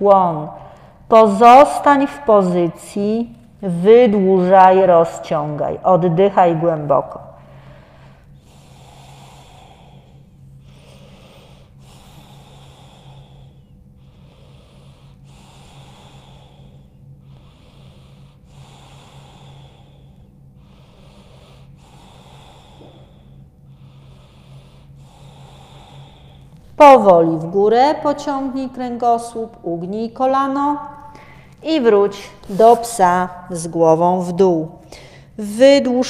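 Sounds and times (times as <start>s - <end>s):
steady low hum: 0.0s - 36.0s
woman breathing deeply: 0.5s - 1.1s, 7.3s - 26.7s, 30.9s - 31.6s, 34.8s - 35.4s.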